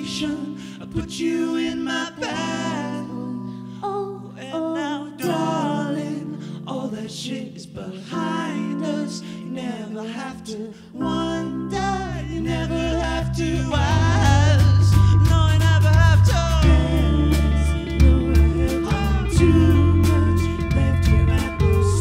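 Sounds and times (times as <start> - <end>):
man singing: 0.0 - 22.0
keyboard synth chords: 4.5 - 22.0
electric guitar: 11.8 - 22.0
heavy bass: 12.3 - 22.0.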